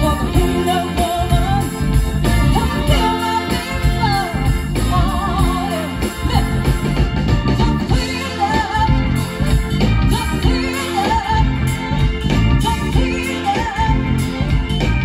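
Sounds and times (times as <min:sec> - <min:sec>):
woman singing into a microphone: 0:00.0 - 0:06.8, 0:07.9 - 0:09.2, 0:10.0 - 0:12.0, 0:12.6 - 0:14.4
bass guitar: 0:00.0 - 0:15.0
live band playing: 0:00.0 - 0:15.0.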